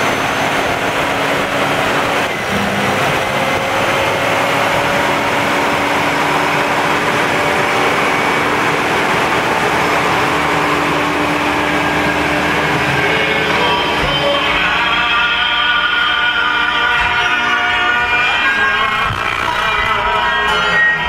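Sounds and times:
faint rising whine: 0.0 - 14.9
truck engine idling: 0.0 - 21.0.

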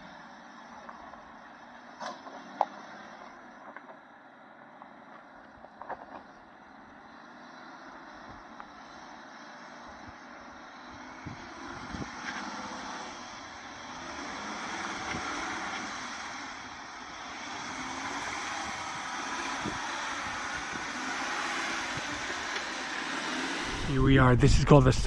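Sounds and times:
vehicle engine working under load: 0.0 - 25.0.

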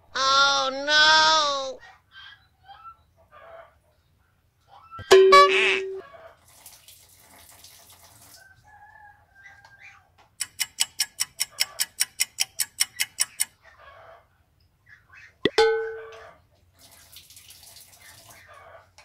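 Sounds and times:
water running into plastic cup: 6.5 - 8.4.

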